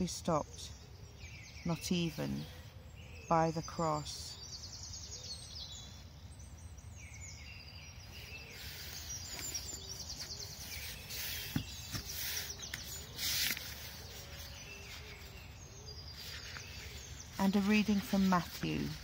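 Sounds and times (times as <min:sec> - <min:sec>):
songbirds singing: 0:00.0 - 0:19.0
microphone handling rustles: 0:08.7 - 0:15.5.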